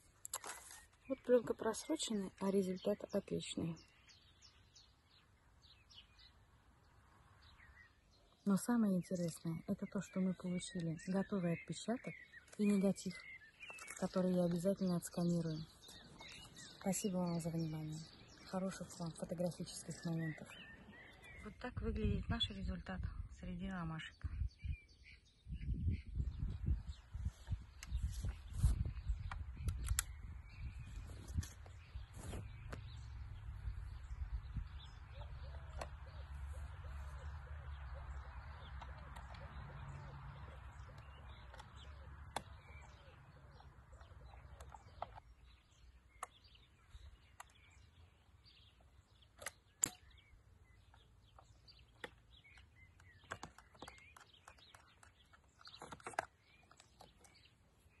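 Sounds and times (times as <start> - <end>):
birds chirping: 0.0 - 58.0
clicks and knocks of camera: 27.8 - 33.0, 51.9 - 57.5.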